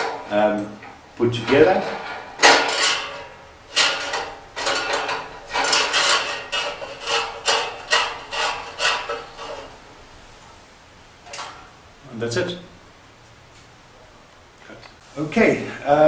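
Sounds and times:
metal stove parts clanking: 0.0s - 9.8s, 11.2s - 11.7s.

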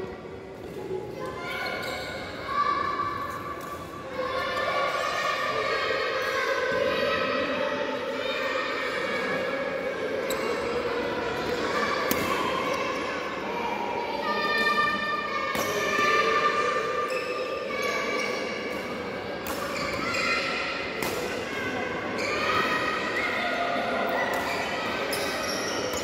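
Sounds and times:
rackets hitting shuttlecock: 19.4s - 20.0s, 21.0s - 21.4s.

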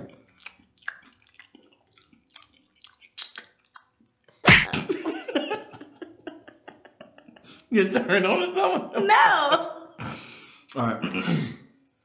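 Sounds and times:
chewing and mouth clicks: 0.0s - 4.1s.

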